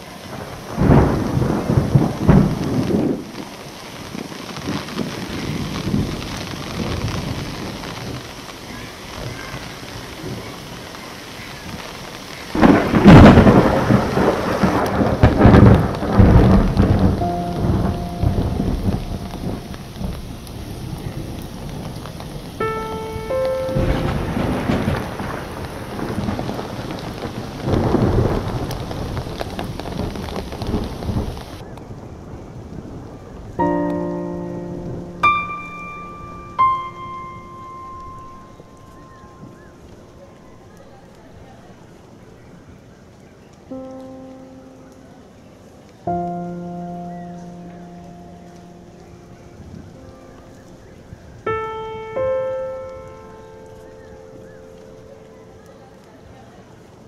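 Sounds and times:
thunder rolling: 0:00.0 - 0:08.4, 0:11.6 - 0:41.5
rain falling on lake: 0:00.0 - 0:57.0.

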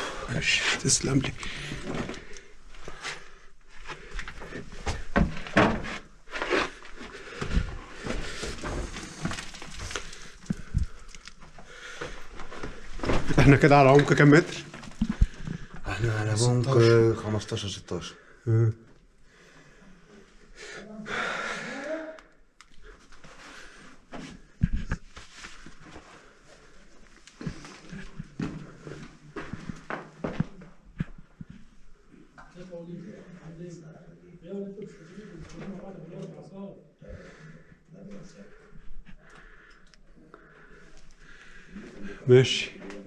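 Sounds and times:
shuffling: 0:23.0 - 0:31.7
rustling and scuffs: 0:23.1 - 0:30.7.

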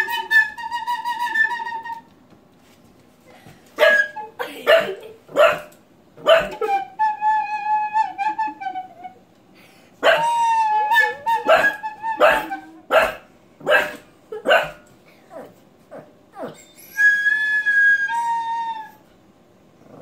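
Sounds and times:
puppy barking: 0:03.8 - 0:06.8, 0:10.0 - 0:10.3, 0:11.0 - 0:14.8.

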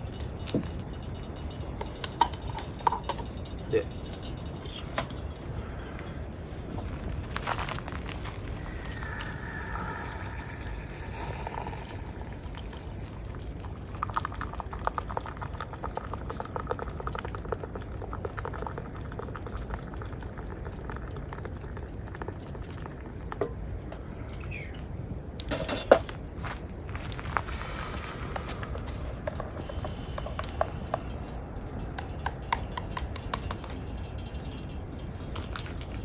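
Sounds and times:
water pouring into cup: 0:08.4 - 0:23.4.

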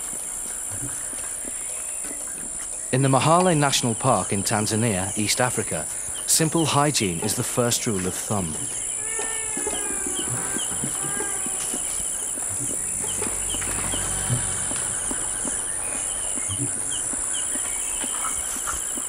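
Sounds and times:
insect chirping trills: 0:00.0 - 0:19.0
high-pitched insect drone: 0:08.9 - 0:18.6
calls falling in pitch: 0:09.0 - 0:18.3.

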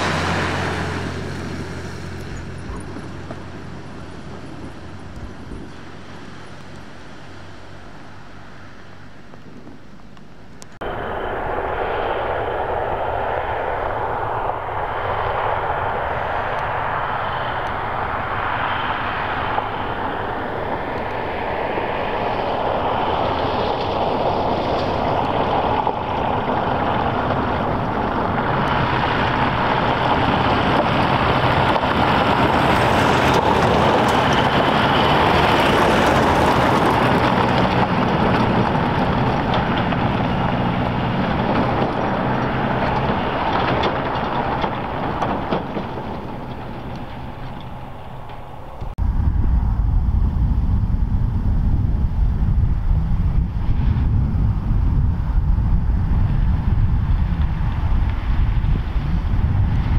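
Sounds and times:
diesel engines running: 0:00.0 - 0:59.9
tyres crunching over gravel: 0:23.8 - 0:48.9.

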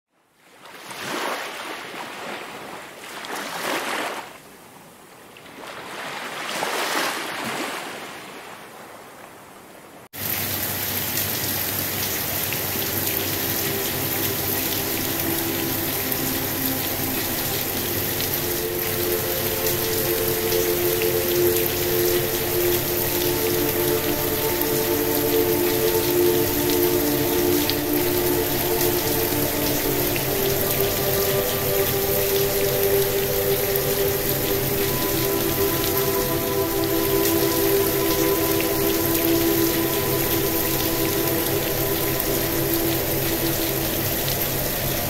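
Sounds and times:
steady soft rain: 0:04.4 - 0:45.0
ambient drone of low tones: 0:12.2 - 0:45.0.

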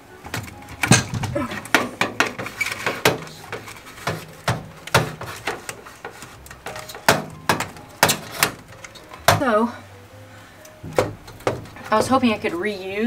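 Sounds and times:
knocks clicks and rattles on metal: 0:00.2 - 0:09.5, 0:10.8 - 0:12.5.

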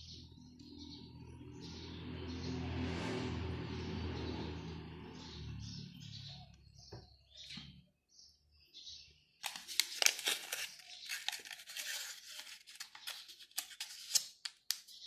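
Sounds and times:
crinkling rustle of shaping dough: 0:09.4 - 0:15.0.

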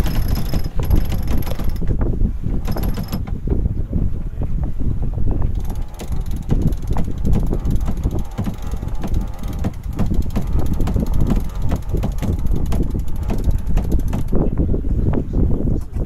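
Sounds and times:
winch pawls clicking: 0:00.0 - 0:01.9, 0:05.5 - 0:14.4
wind buffeting microphone: 0:00.0 - 0:16.0.

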